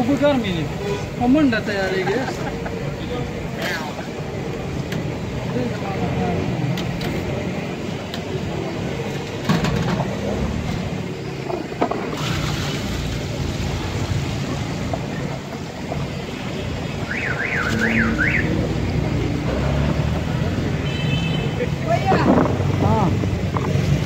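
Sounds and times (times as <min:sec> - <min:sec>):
street traffic noise: 0:00.0 - 0:24.0
hot oil sizzling in a fryer: 0:12.2 - 0:14.9.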